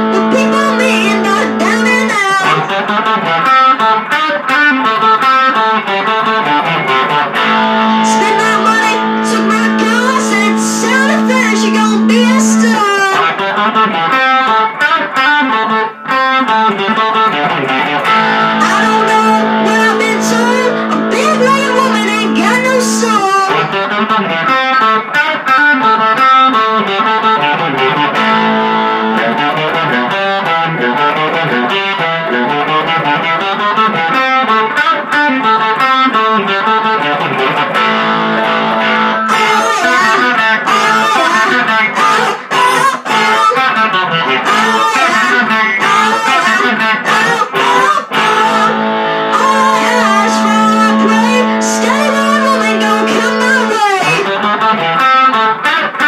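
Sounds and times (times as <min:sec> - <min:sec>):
electric guitar hard-rock riffs: 0:00.0 - 0:56.0.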